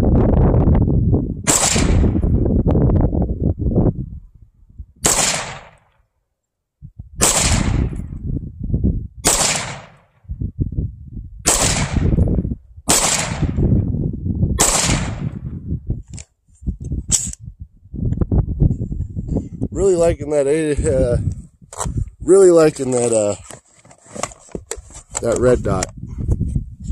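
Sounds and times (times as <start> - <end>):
rifle shots echoing: 1.5 - 2.2, 5.0 - 5.9, 7.2 - 8.0, 9.2 - 10.1, 11.4 - 12.2, 12.9 - 13.7, 14.6 - 15.4.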